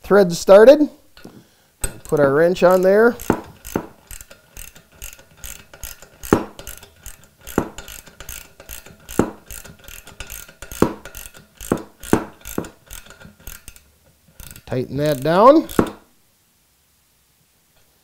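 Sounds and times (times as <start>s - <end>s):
ratchet wrench clicking: 1.2s - 16.0s.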